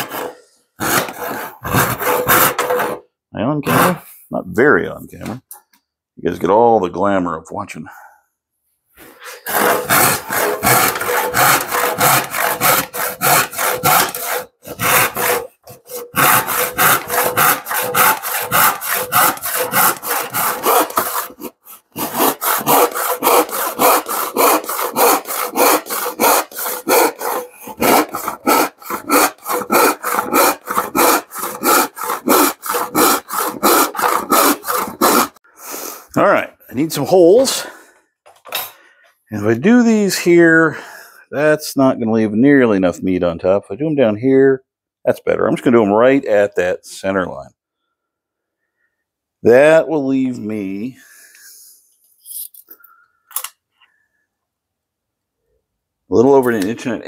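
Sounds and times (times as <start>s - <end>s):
hand saw cutting wood: 0.0s - 3.0s, 3.7s - 4.0s, 9.4s - 35.4s.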